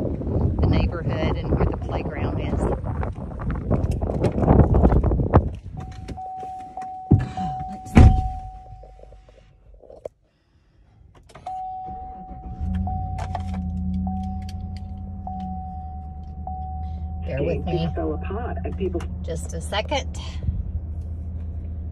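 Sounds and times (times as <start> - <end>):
wind buffeting the microphone: 0.0 - 6.3
car engine starting: 0.0 - 10.1, 10.8 - 21.9
car door shutting: 3.9 - 9.0, 11.2 - 17.1
car door chime beeping: 5.7 - 9.1, 11.4 - 18.2.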